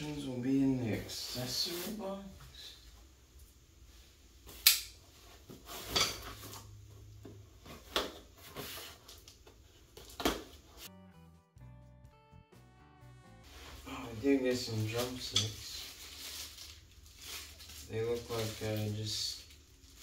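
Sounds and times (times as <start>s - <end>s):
background music: 10.9s - 14.5s.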